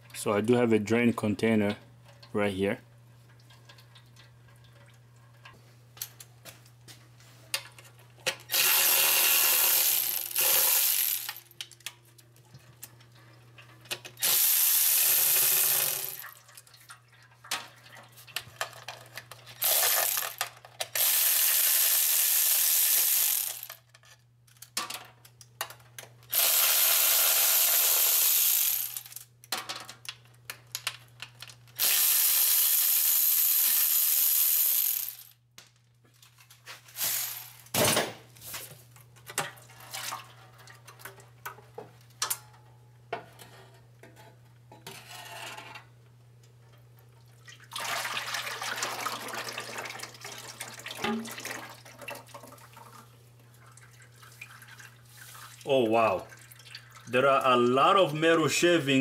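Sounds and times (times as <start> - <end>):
air ratchet hissing bursts: 8.5 - 11.4, 14.2 - 16.2, 19.6 - 20.4, 21.0 - 23.7, 26.3 - 29.2, 31.8 - 35.4, 37.0 - 37.6.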